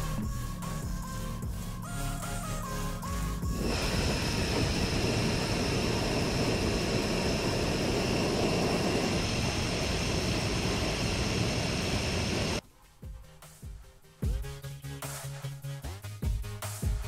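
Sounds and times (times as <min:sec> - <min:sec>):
gas stove flame rushing: 0:03.4 - 0:12.6.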